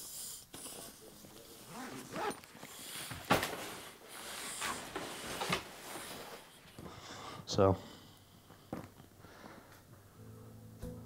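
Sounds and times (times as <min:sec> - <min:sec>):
clothes and bags rustling: 0:01.2 - 0:06.9.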